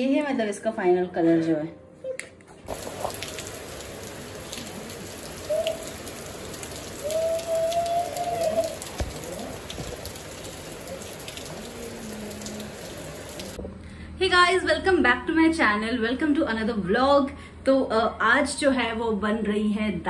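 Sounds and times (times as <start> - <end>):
rain falling: 2.7 - 13.6
long pitched call: 4.5 - 9.7.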